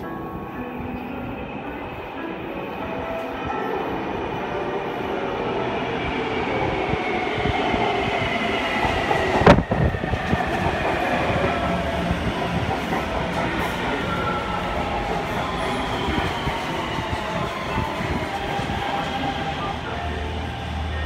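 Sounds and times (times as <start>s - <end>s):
train wheels rumbling: 5.4s - 21.0s.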